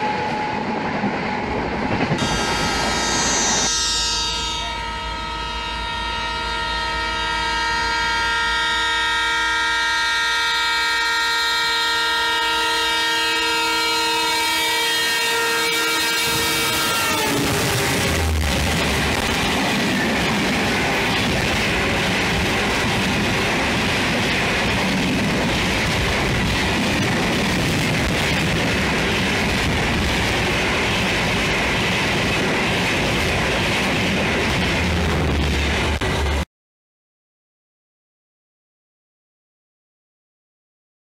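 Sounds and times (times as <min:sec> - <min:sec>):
train horn: 0:00.0 - 0:01.6, 0:02.2 - 0:19.3
train wheels clattering on rails: 0:17.4 - 0:36.4.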